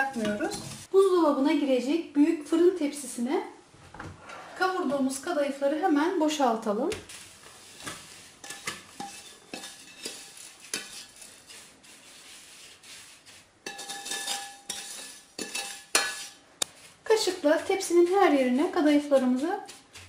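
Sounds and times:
dry pastry rustling: 7.0s - 13.7s
spatula scraping metal pot: 7.1s - 16.4s.

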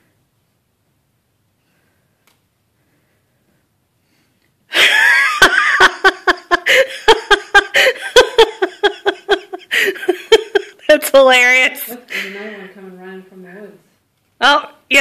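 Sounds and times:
person laughing hard: 4.7s - 10.9s.

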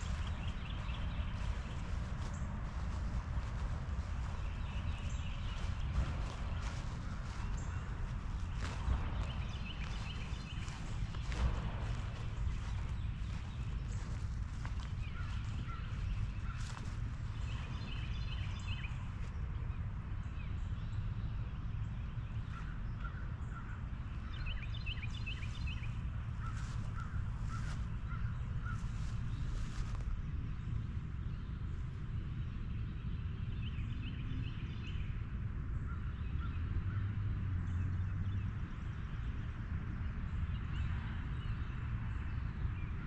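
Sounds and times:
footsteps through grass: 0.0s - 19.5s, 24.4s - 30.8s
small birds chirping: 0.0s - 35.2s
wind rumble on microphone: 0.0s - 43.0s.

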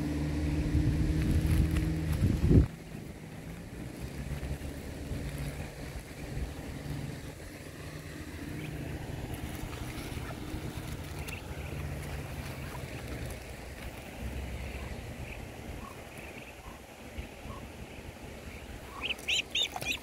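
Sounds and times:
low steady motor hum: 0.0s - 20.0s
ducklings peeping: 8.5s - 13.4s, 14.5s - 20.0s.

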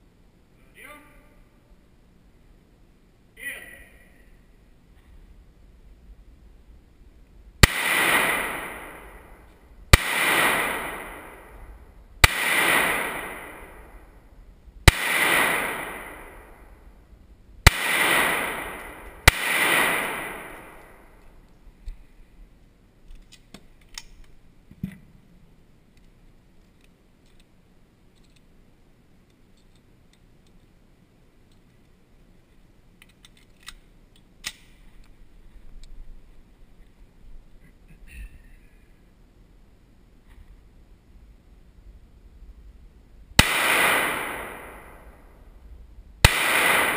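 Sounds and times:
pistol shots echoing: 7.6s - 14.2s, 14.8s - 16.8s, 17.6s - 21.2s, 43.4s - 45.3s, 46.2s - 46.9s.

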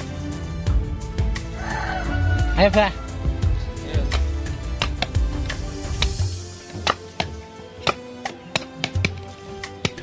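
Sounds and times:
background music with held notes: 0.0s - 10.0s
sharp knocks: 4.1s - 5.2s.

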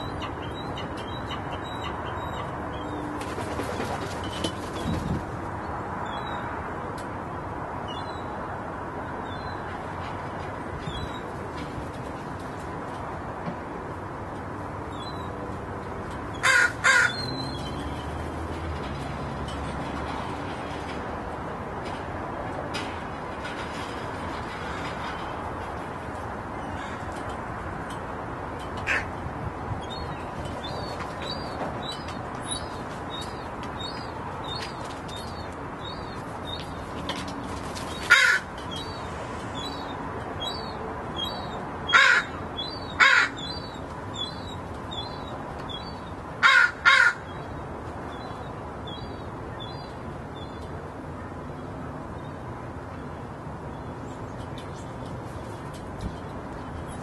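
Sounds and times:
crows cawing: 16.4s - 17.2s, 28.8s - 29.1s, 38.1s - 38.5s, 41.9s - 42.4s, 43.0s - 43.5s, 46.4s - 47.3s.

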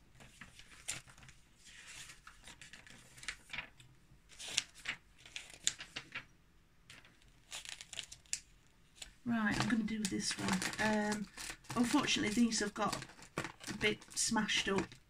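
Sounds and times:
snack wrappers crinkling: 6.9s - 15.0s.

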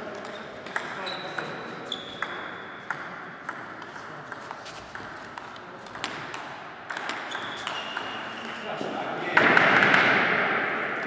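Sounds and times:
table tennis ball bouncing: 0.1s - 8.6s.

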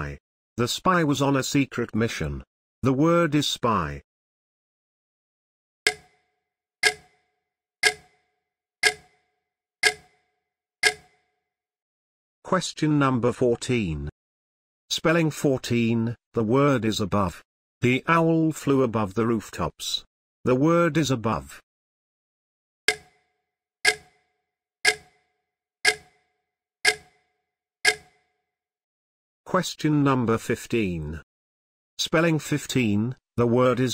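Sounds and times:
clock ticking: 5.9s - 6.2s, 6.8s - 7.2s, 7.8s - 8.2s, 8.8s - 9.2s, 9.8s - 10.2s, 10.8s - 11.2s, 22.9s - 23.2s, 23.8s - 24.2s, 24.8s - 25.2s, 25.8s - 26.2s, 26.8s - 27.2s, 27.8s - 28.2s.

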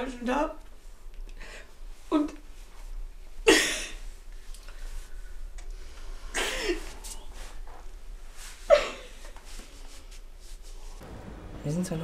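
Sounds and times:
woman sobbing: 8.7s - 9.3s.

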